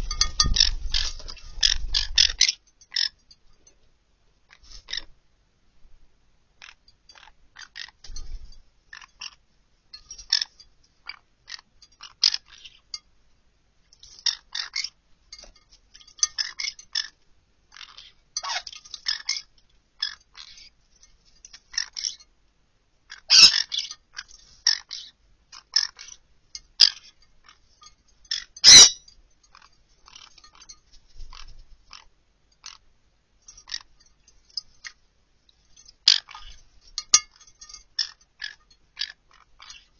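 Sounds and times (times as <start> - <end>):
light clinks against glass: 0.0 - 3.9, 8.0 - 9.2, 9.9 - 10.8, 14.0 - 17.2, 17.8 - 22.3, 26.0 - 31.6, 33.4 - 39.9.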